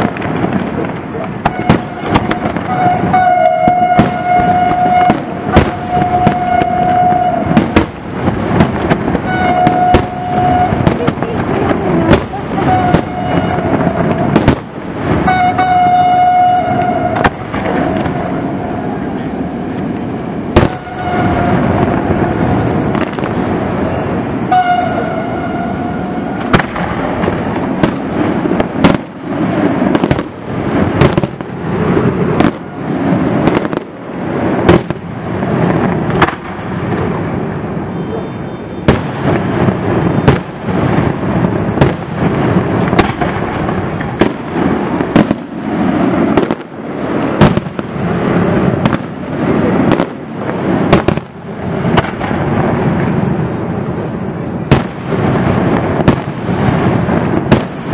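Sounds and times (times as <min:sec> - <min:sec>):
firework shells bursting: 0:00.0 - 0:57.9
rumble and crackle: 0:00.0 - 0:57.9
horn-like tone: 0:02.7 - 0:07.5, 0:09.3 - 0:10.8, 0:12.6 - 0:13.8, 0:15.3 - 0:17.2, 0:20.8 - 0:21.6, 0:24.5 - 0:26.4.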